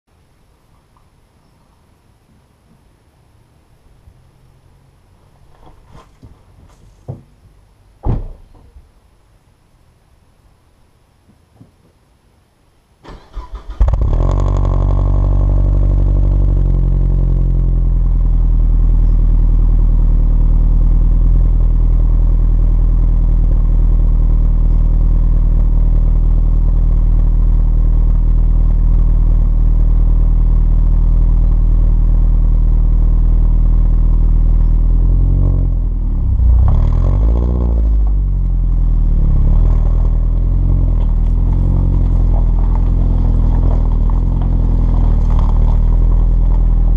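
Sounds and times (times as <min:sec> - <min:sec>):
car engine idling and revving: 0:13.2 - 0:46.9.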